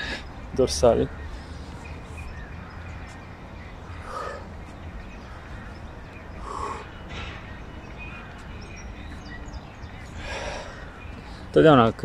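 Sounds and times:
faint bird chirps: 0.0 - 11.6
man breathing: 3.9 - 4.6, 6.4 - 7.0, 10.1 - 11.5.

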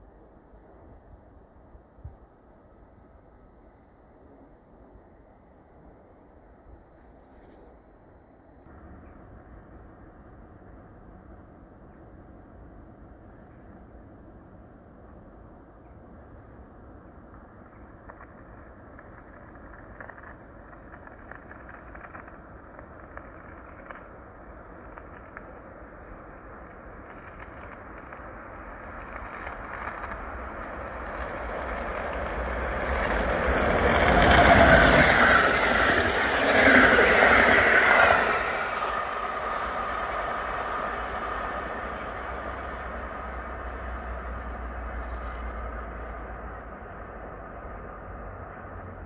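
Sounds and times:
train passing at speed: 24.0 - 49.0.

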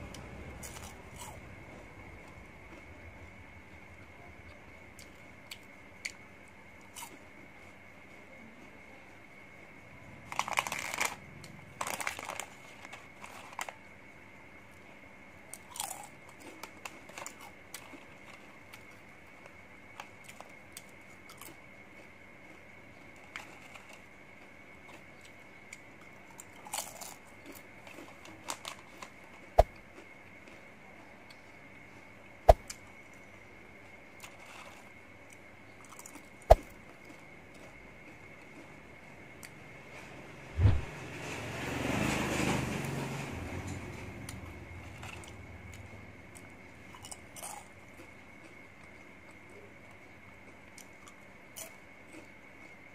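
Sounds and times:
chips crunched and chewed: 0.6 - 1.4, 6.8 - 7.3, 10.2 - 13.9, 15.5 - 31.4, 34.2 - 38.8, 45.0 - 49.5, 50.4 - 52.8
plastic packaging crinkling: 10.3 - 11.2, 11.8 - 13.8.

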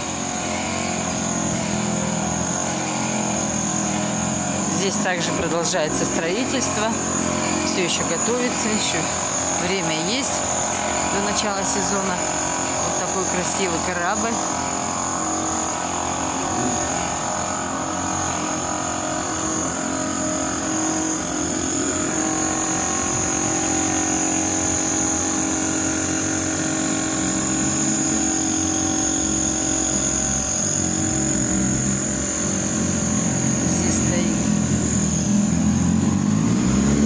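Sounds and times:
engine drone: 0.0 - 37.0
high whine: 0.0 - 37.0.

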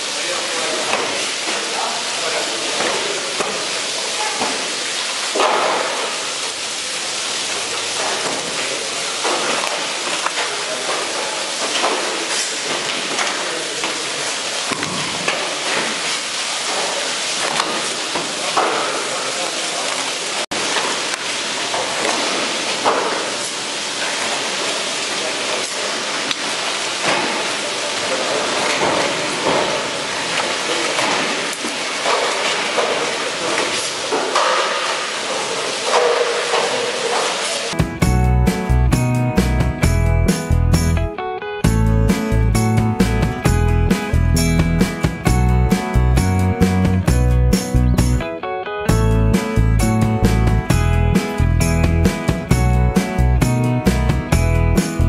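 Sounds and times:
water spraying onto steel table: 0.0 - 37.8.

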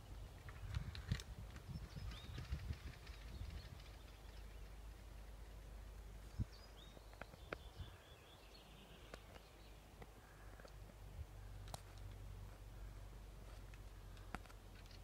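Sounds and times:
wind rumbling on microphone: 0.0 - 5.4, 6.1 - 8.2.

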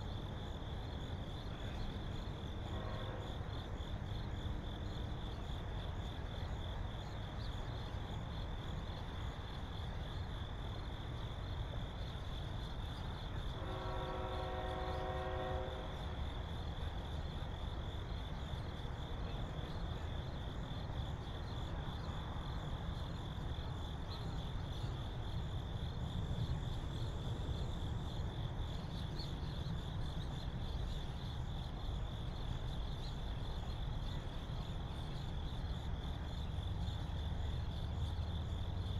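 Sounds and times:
freight train rumbling: 0.0 - 38.9
high insect chorus: 0.0 - 38.9
train horn chord: 2.6 - 3.5, 13.5 - 16.1.

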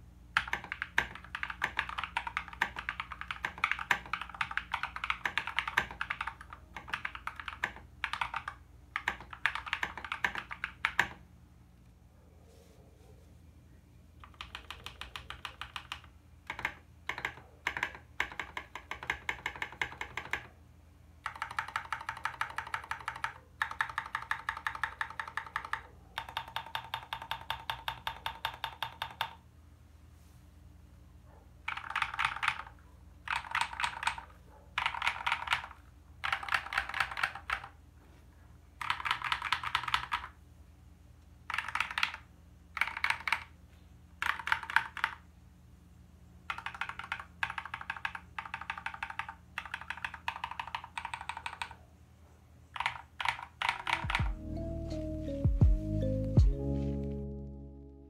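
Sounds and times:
mechanical keyboard typing: 0.3 - 11.2, 14.2 - 20.6, 21.2 - 29.4, 31.7 - 37.8, 38.8 - 40.4, 41.4 - 43.6, 44.2 - 45.2, 46.4 - 51.8, 52.7 - 54.4.

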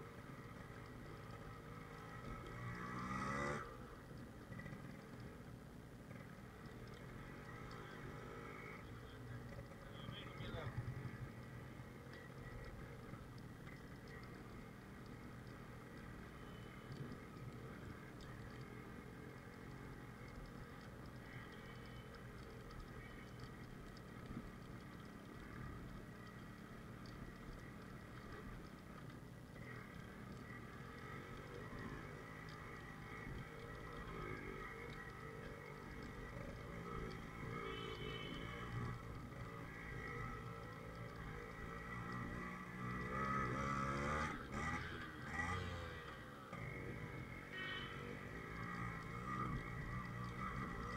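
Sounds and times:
two-stroke motorcycle engine revving: 1.4 - 3.8, 29.6 - 50.9.

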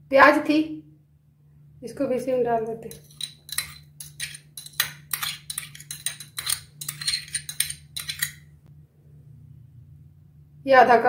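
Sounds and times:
spoon clinking on glass bowl: 2.9 - 8.4.

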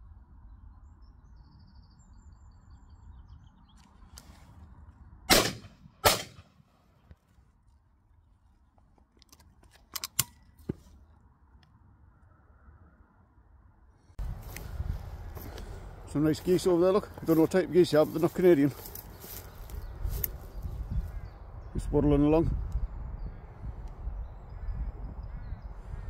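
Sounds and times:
shotgun shots: 5.3 - 6.6
shotgun action metallic clicks: 9.2 - 10.6.

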